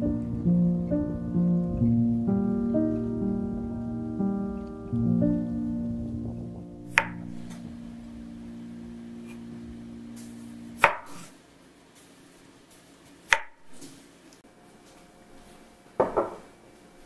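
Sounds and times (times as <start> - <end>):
knife chopping potatoes on wood: 10.8 - 11.3, 13.3 - 13.8.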